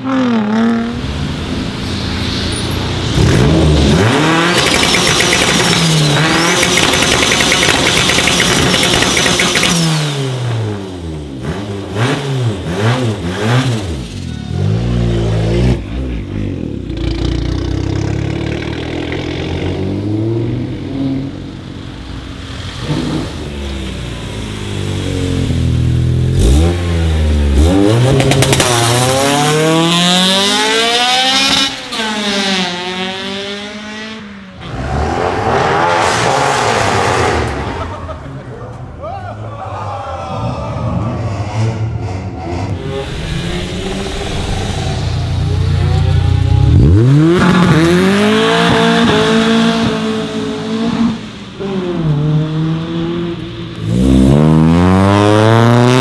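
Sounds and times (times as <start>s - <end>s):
car engine rev blips: 0.0s - 16.2s, 40.9s - 56.0s
sharp crack: 4.0s - 10.2s.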